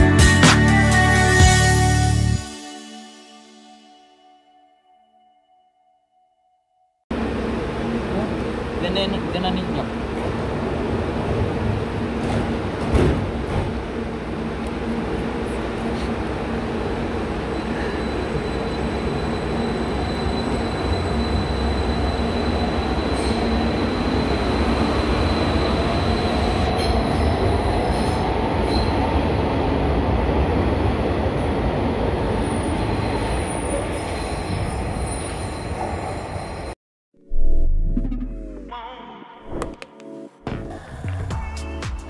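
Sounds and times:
train wheels rumbling on rails: 9.5s - 29.5s.

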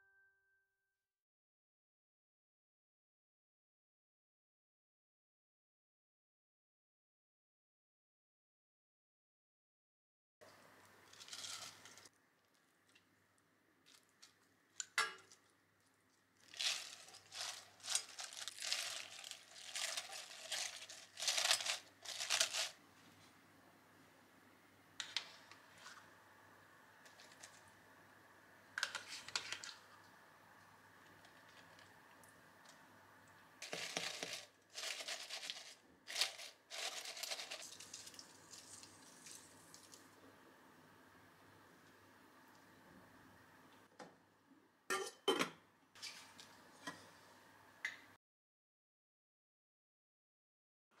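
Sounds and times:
cabbage leaves crunching in pot: 11.1s - 12.1s, 16.4s - 22.8s, 33.6s - 39.9s.

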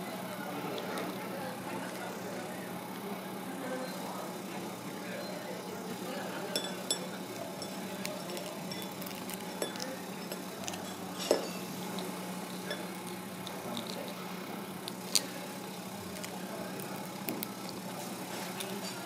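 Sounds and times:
faint room murmur: 0.0s - 19.0s
steady low hum: 0.0s - 19.0s
dishes clinking: 6.5s - 11.7s, 12.6s - 13.0s.

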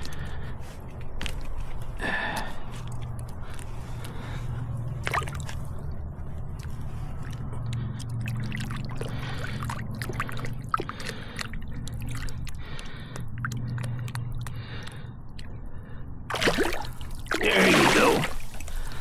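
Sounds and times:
low steady hum: 0.0s - 19.0s
water sloshing and dripping: 0.0s - 19.0s
small water splashes: 5.0s - 15.0s, 16.3s - 19.0s.

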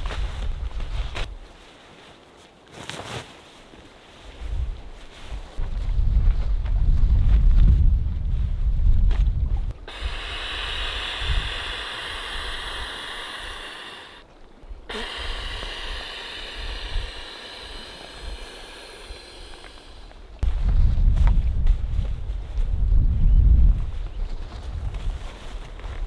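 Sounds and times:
wind rumbling on microphone: 0.0s - 1.5s, 4.2s - 26.0s
breath blown into air pillow valve: 9.8s - 14.2s, 14.9s - 20.2s.

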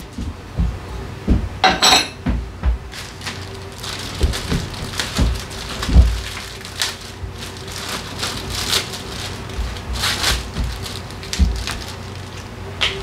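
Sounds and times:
heavy thumps: 0.2s - 2.9s, 9.6s - 11.9s.

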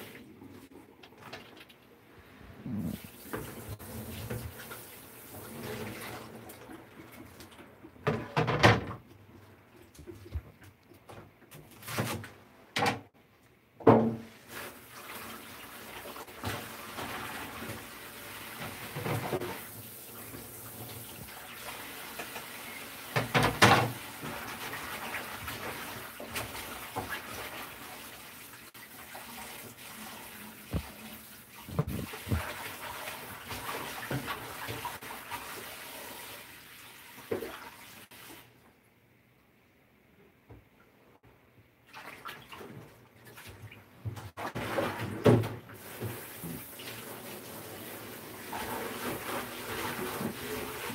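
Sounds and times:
tap running water into sink: 2.9s - 9.0s, 13.8s - 28.0s, 30.6s - 36.3s, 37.2s - 38.4s.

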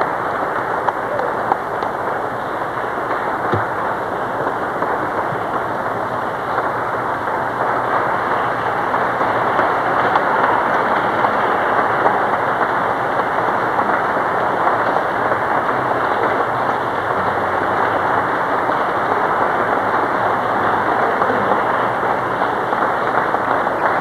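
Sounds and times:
audience applauding: 0.0s - 24.0s.

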